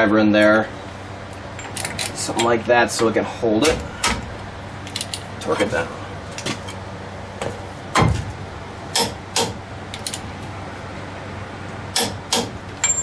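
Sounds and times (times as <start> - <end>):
heavy thump: 7.4 - 8.3.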